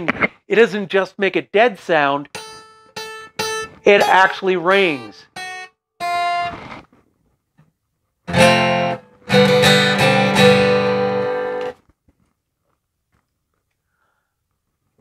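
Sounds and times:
acoustic guitar strumming: 2.3 - 6.8, 8.3 - 11.8.

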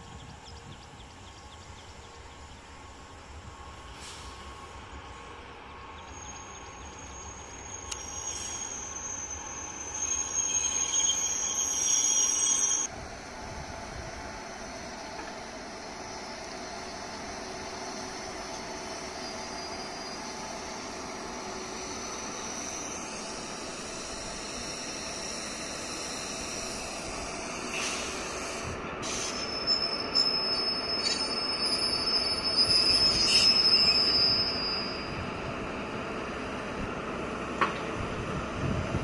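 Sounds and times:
high-pitched wheel squeal: 6.1 - 12.9, 29.0 - 35.4
steel wheels rolling on rails: 16.3 - 39.0.

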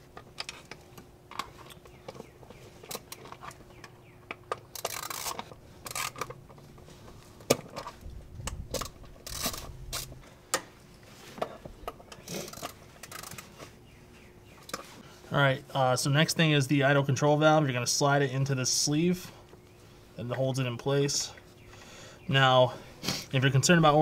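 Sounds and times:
hands rubbing and scraping parts: 0.0 - 13.8
ratchet clicking: 4.7 - 6.3, 8.7 - 10.1, 12.4 - 13.4.

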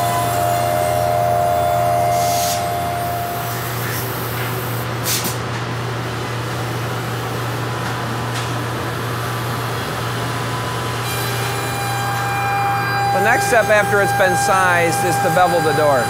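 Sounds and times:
higher steady tone: 0.0 - 4.8, 11.3 - 16.0
router machining wood: 11.1 - 16.0.

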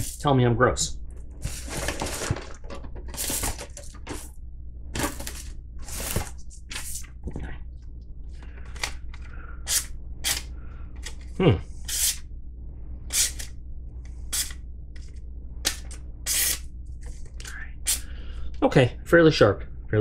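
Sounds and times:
papers and packaging rustling: 1.1 - 4.4, 5.0 - 7.1.

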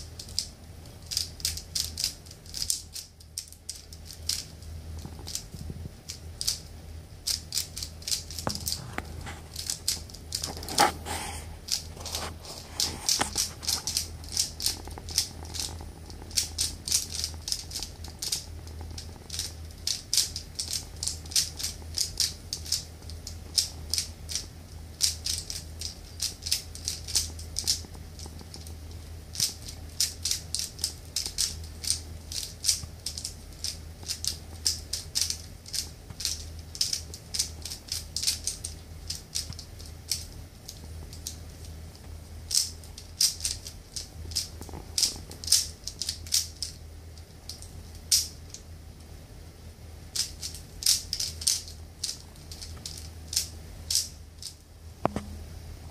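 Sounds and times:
puzzle cube plastic clicks: 0.1 - 6.6, 13.1 - 24.4.

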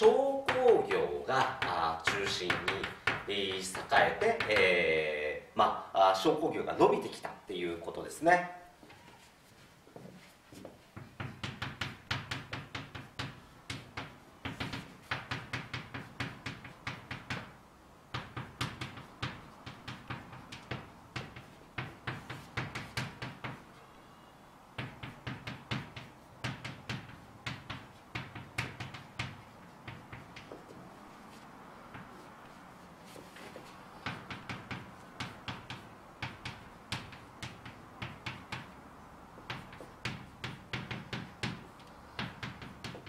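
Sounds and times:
chalk tapping on blackboard: 0.0 - 4.8, 10.2 - 23.9, 24.7 - 43.0.

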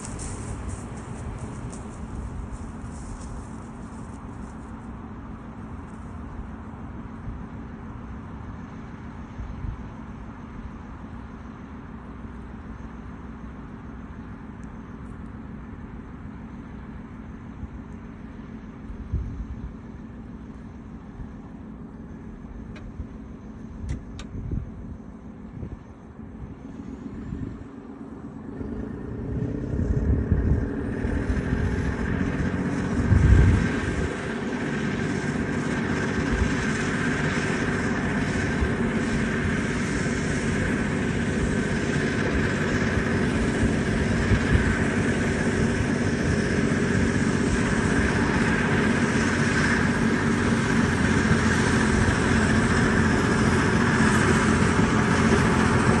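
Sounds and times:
bulldozer diesel engine running: 0.0 - 56.0.

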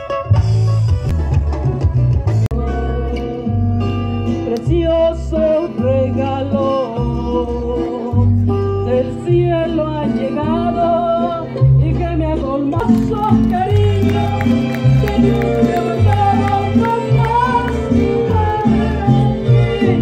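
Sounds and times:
live band over pa: 0.0 - 20.0
person singing: 8.9 - 20.0.

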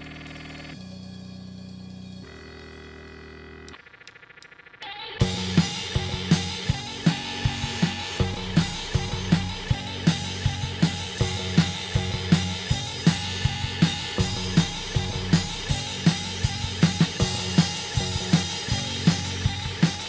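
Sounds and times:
bass drum and snare hits: 5.2 - 20.0
bass guitar notes: 5.2 - 20.0.

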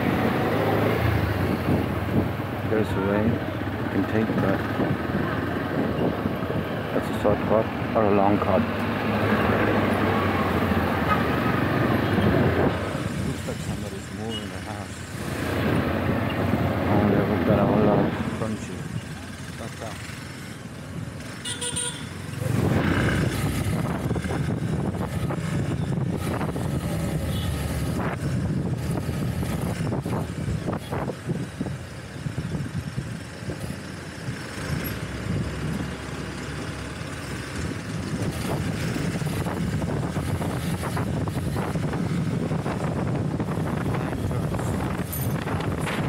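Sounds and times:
wind noise on microphone: 0.0 - 2.6, 4.2 - 7.4, 9.0 - 13.7, 22.4 - 36.3, 37.3 - 46.0
vehicle horn toot: 21.4 - 22.1.

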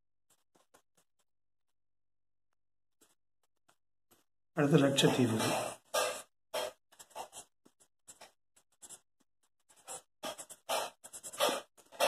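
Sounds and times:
marker writing on whiteboard: 3.0 - 12.0.

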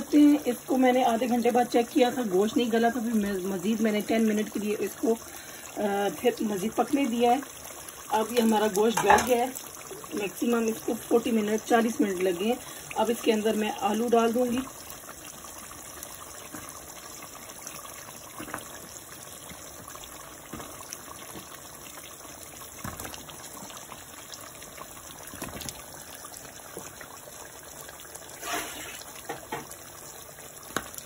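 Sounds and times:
pot of curry bubbling: 0.0 - 31.0.

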